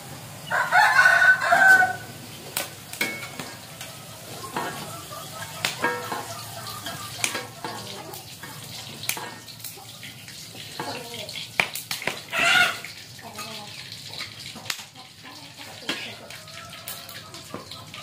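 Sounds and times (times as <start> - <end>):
vegetables sizzling in a wok: 0.0 - 18.0
metal spatula scraping wok: 3.0 - 5.1, 5.8 - 11.0.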